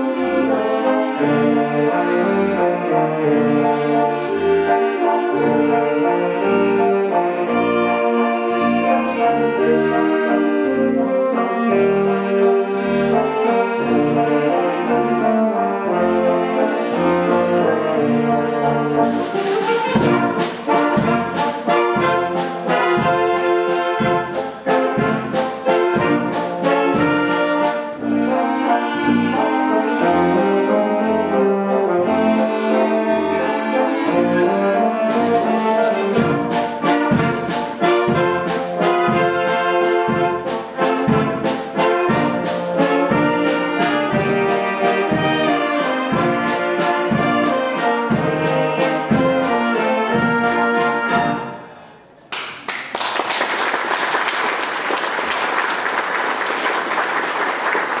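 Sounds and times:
wind band playing a march: 0.0 - 52.0
audience applauding: 52.3 - 58.0.

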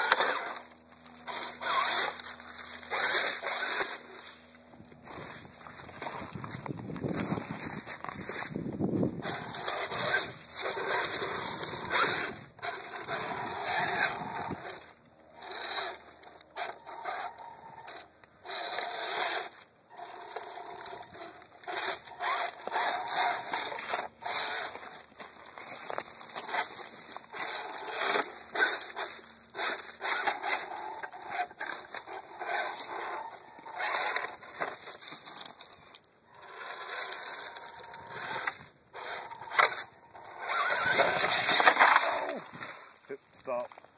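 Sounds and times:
crunching dry leaves: 0.0 - 15.8, 18.5 - 43.9
toy car motor whirring: 0.0 - 43.6
tyres scrabbling over rock: 17.9 - 43.9.

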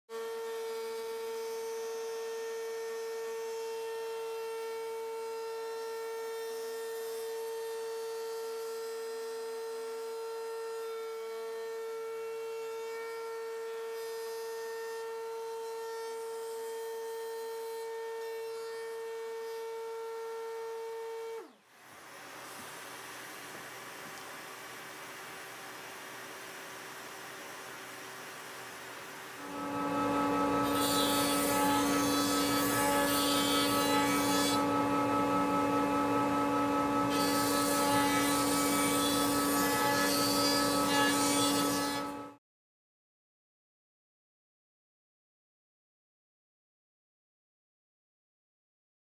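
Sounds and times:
router motor whining: 17.2 - 22.7, 29.4 - 42.4.

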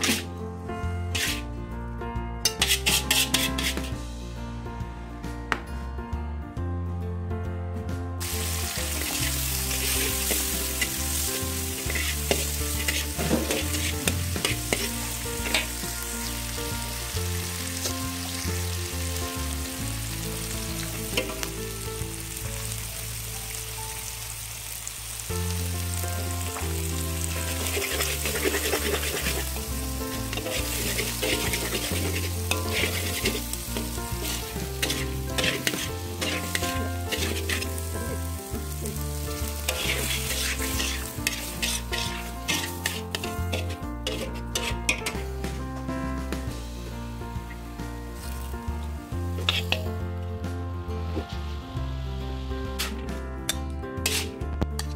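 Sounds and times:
food sizzling in hot oil: 0.0 - 0.4, 1.0 - 1.5, 2.4 - 4.0, 8.2 - 45.6, 46.4 - 50.2, 54.0 - 54.9
metal spatula scraping a wok: 0.0 - 0.4, 1.0 - 1.5, 2.4 - 4.1, 8.2 - 16.6, 20.9 - 21.5, 27.2 - 45.3, 49.3 - 50.0, 52.8 - 54.9.

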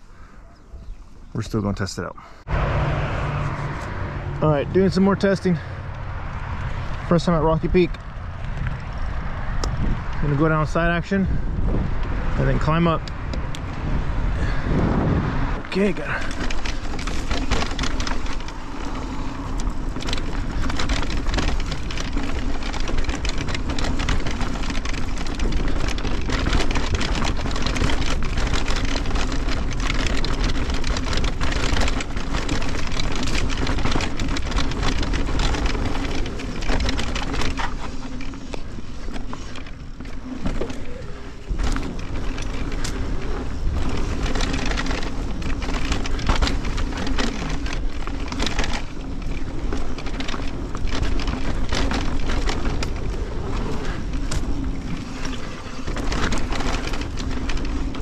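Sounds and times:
wind rumble on microphone: 2.4 - 58.0
bike rattling over bumps: 3.3 - 58.0
tyres crunching over dirt and rocks: 15.7 - 58.0.

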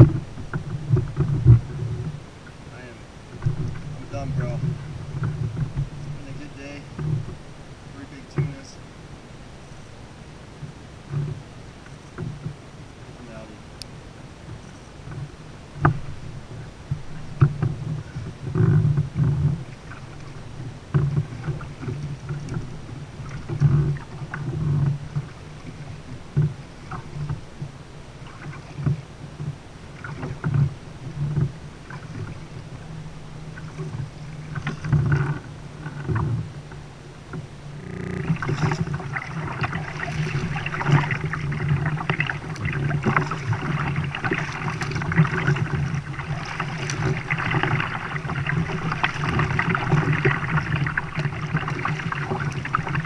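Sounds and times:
rush of paddled water: 0.0 - 53.0
water lapping: 0.0 - 53.0.

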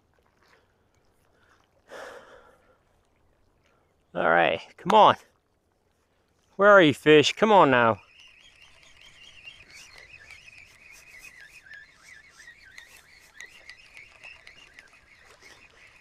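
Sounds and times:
small animals chirping and trilling: 8.0 - 16.0
faint clicks: 8.4 - 16.0.

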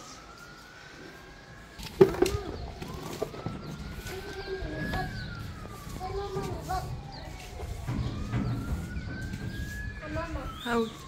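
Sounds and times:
siren rising and falling: 0.0 - 11.0.

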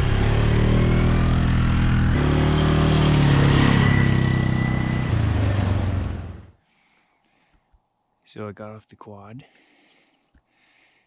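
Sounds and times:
vehicle engines running: 0.0 - 6.6.

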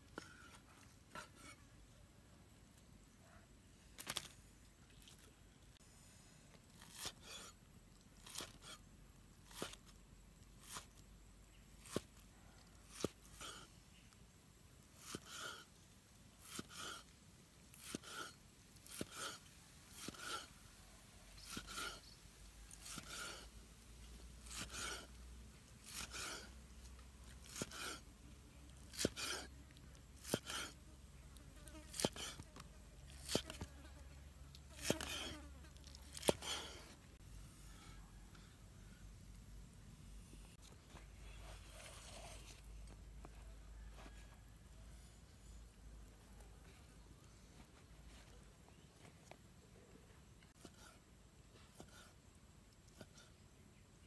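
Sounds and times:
knife slicing meat: 6.8 - 7.6, 8.2 - 8.8, 16.4 - 17.0, 17.7 - 20.5, 21.4 - 22.0, 22.7 - 23.5, 24.4 - 25.2, 25.8 - 26.5, 27.3 - 28.1, 28.8 - 29.5, 30.2 - 30.8, 31.8 - 33.7, 34.8 - 36.9.

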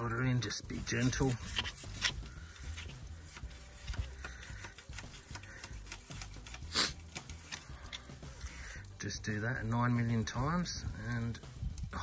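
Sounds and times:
metal ticks and scrapes: 0.0 - 9.2.

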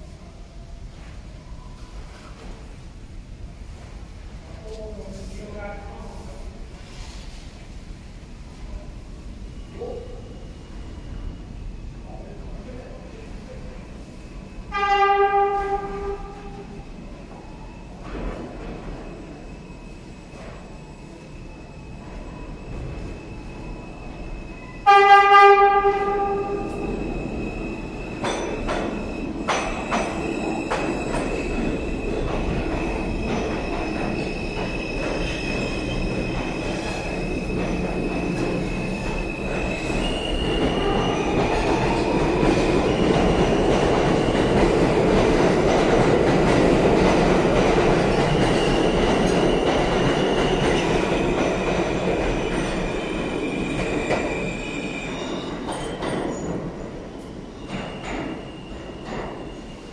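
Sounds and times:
passing train roar: 2.2 - 59.9
train horn blast: 14.7 - 16.7, 24.8 - 26.8
high wheel squeal: 26.5 - 42.2.

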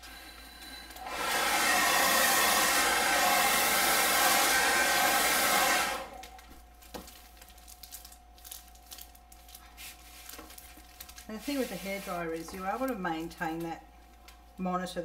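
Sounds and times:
hair dryer blowing: 0.9 - 6.4.

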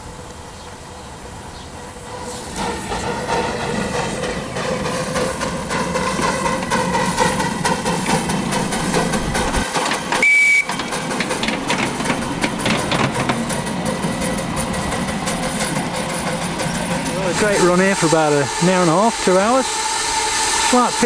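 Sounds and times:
model steam train clattering on track: 2.6 - 21.0
high train whistle blast: 10.2 - 10.8, 17.6 - 21.0.

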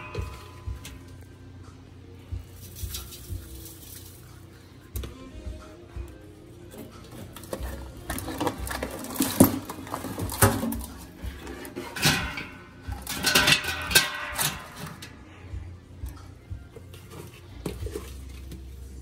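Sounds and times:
crab shells clattering on metal: 6.7 - 15.2.

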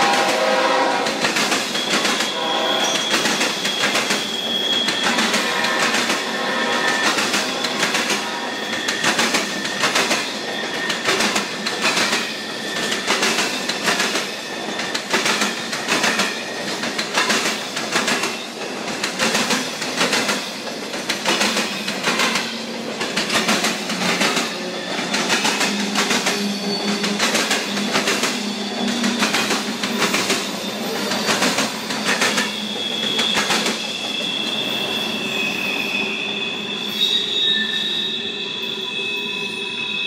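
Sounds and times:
train wheels clacking on rail joints: 0.0 - 34.6.

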